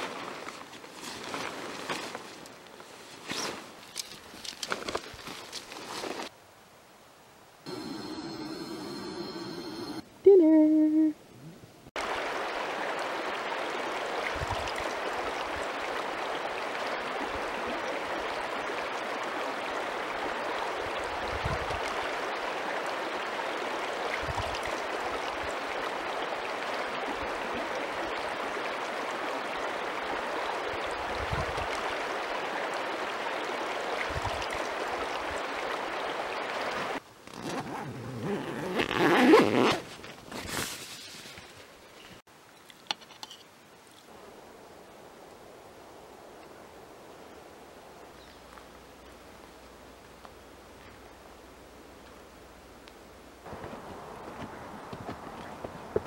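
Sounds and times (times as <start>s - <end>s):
river rushing: 7.6s - 10.0s, 12.0s - 37.0s
rustling handling noise: 39.6s - 41.7s.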